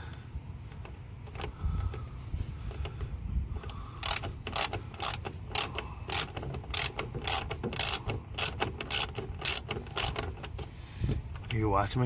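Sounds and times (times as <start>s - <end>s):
socket ratchet clicking: 3.6s - 10.7s.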